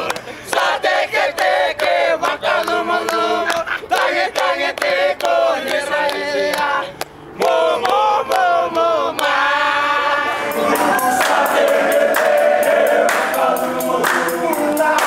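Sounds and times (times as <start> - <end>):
hand claps: 0.0 - 0.7, 10.7 - 15.0
young men singing together: 0.4 - 15.0.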